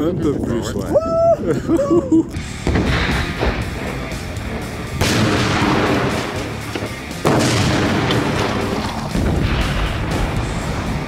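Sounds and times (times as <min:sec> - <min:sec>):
music: 0:01.5 - 0:11.0
gas explosion booms: 0:05.0 - 0:10.9.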